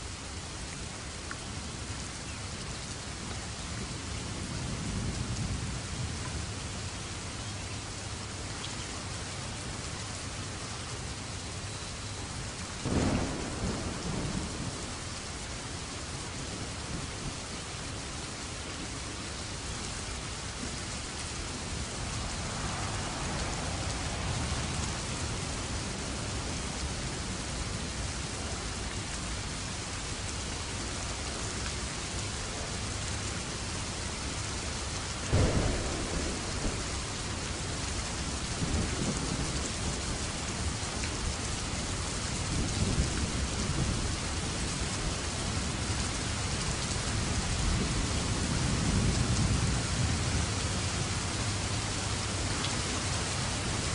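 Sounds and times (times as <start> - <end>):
steady rain: 0.0 - 53.9
low rolling thunder: 12.8 - 17.4, 20.4 - 28.6, 34.8 - 52.4
thunderclap: 12.9 - 14.9, 35.3 - 39.9.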